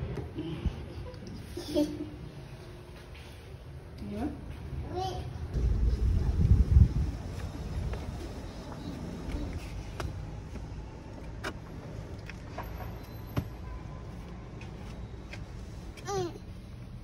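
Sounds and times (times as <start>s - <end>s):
steady low rumble: 5.5s - 12.1s.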